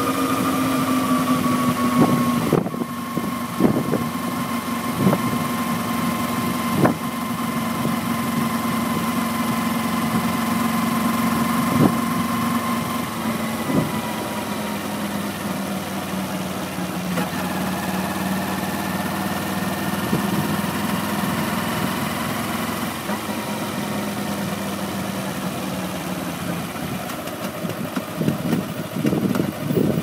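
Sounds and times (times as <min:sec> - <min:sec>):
motorcycle engine running: 0:00.0 - 0:30.0
rushing wind: 0:01.7 - 0:04.2, 0:11.6 - 0:14.4, 0:27.8 - 0:30.0.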